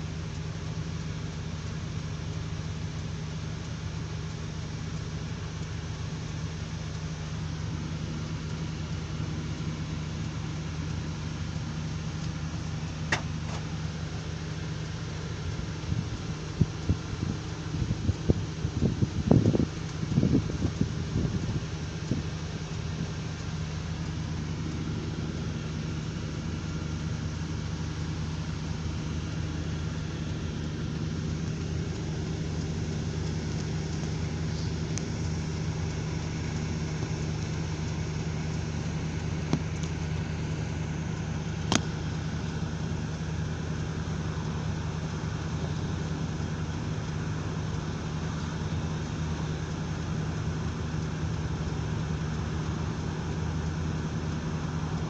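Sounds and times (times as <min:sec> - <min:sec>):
engine idling: 0:00.0 - 0:55.0.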